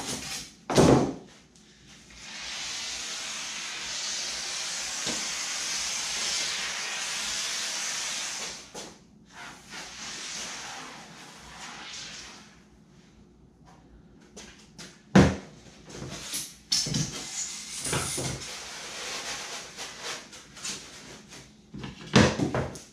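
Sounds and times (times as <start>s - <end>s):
aerosol foam can hissing: 2.2s - 8.7s.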